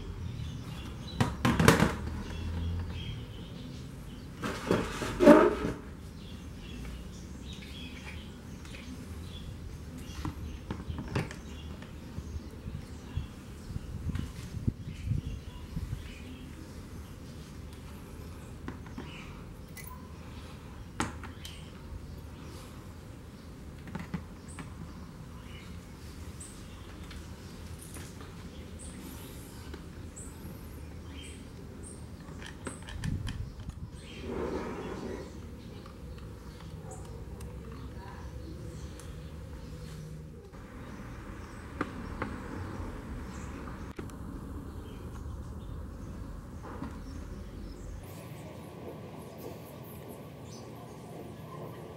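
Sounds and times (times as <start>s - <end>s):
faint birds chirping: 0.0s - 51.9s
plastic lid scraping and knocking: 4.4s - 5.8s.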